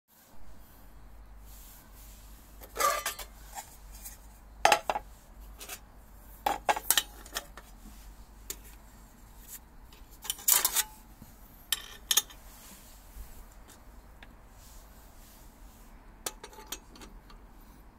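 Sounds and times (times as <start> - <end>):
metal stove parts clinking: 2.6 - 3.4, 6.5 - 7.7, 10.2 - 11.0, 11.7 - 12.4, 16.2 - 17.4.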